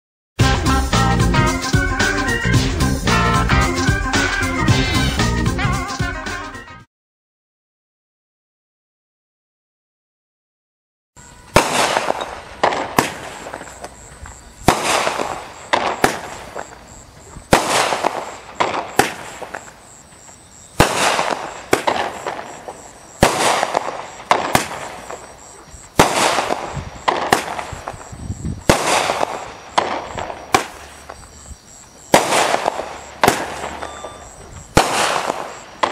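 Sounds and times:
firework bangs: 11.2s - 35.9s.

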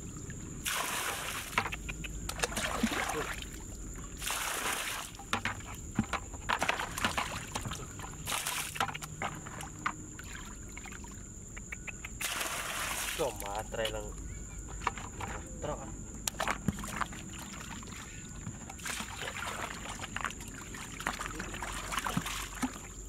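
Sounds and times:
muddy water sloshing and pouring: 0.0s - 11.5s, 12.2s - 23.0s.

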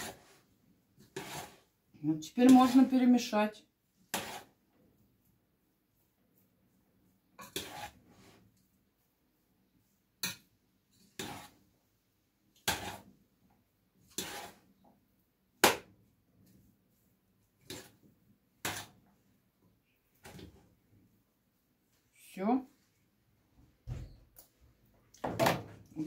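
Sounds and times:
spoon stirring food in dish: 0.0s - 3.1s, 3.9s - 9.0s, 9.8s - 11.8s, 12.4s - 15.8s, 16.4s - 20.8s.

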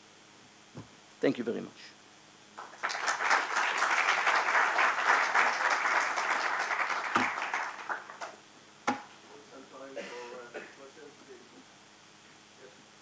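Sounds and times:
audience applauding: 2.6s - 8.4s.

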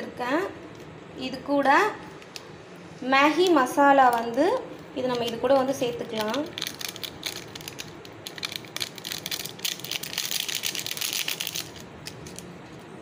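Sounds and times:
foil sachet crinkling: 4.1s - 12.5s.

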